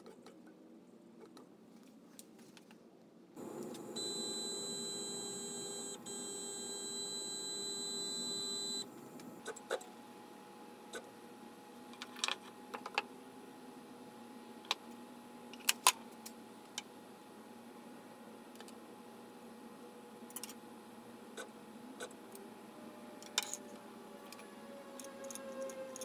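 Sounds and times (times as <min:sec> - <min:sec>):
stepper motors whining: 0:03.4 - 0:09.3.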